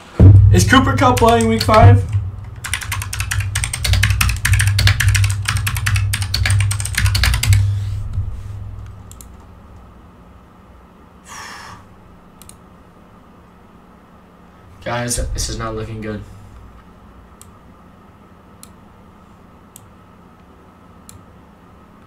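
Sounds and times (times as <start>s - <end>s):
typing on computer keyboard: 1.0s - 7.7s.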